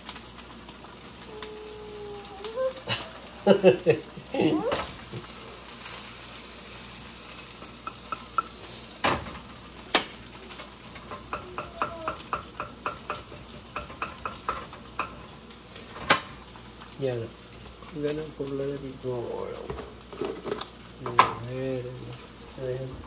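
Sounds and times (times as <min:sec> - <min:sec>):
food sizzling: 0:00.0 - 0:23.0.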